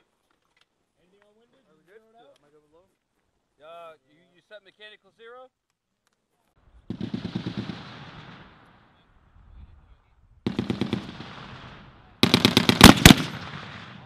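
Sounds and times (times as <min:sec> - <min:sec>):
rolling echo of gunfire: 0:06.9 - 0:08.9, 0:10.5 - 0:14.0
heavy machine gun bursts: 0:10.5 - 0:11.4, 0:12.2 - 0:14.0.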